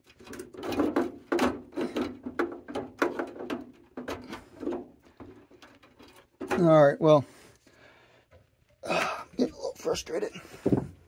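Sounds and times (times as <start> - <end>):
clicks taps and scrapes: 0.0 - 6.7.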